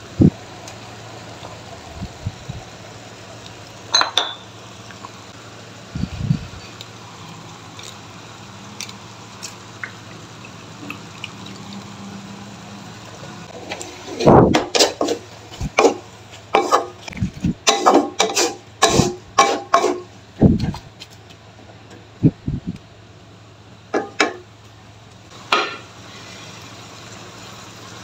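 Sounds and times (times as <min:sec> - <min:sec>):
spatula scraping a wok: 0:13.5 - 0:20.1.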